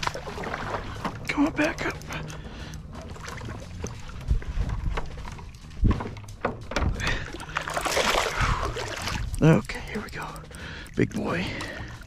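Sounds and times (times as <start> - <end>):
fish splashing water: 7.2 - 9.4.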